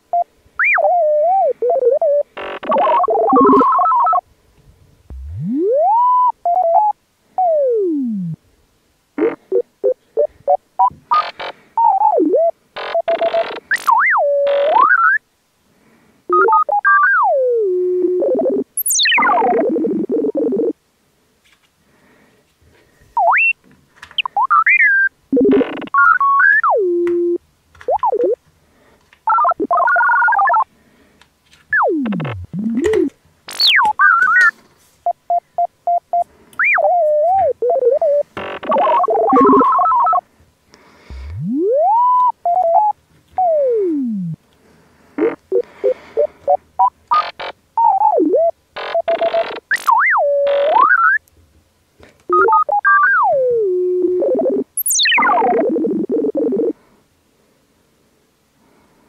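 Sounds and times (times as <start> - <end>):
sliding synthesized tones: 0.6 - 4.2, 5.1 - 8.4, 16.3 - 20.8, 24.2 - 28.4, 31.7 - 34.6, 36.6 - 40.2, 41.1 - 44.4, 52.3 - 56.7
warbling blips: 0.6 - 4.2, 5.1 - 8.4, 16.3 - 20.8, 31.7 - 34.5, 36.6 - 40.2, 41.1 - 44.4, 52.3 - 56.7
short beeps: 0.8 - 4.2, 35.3 - 40.2.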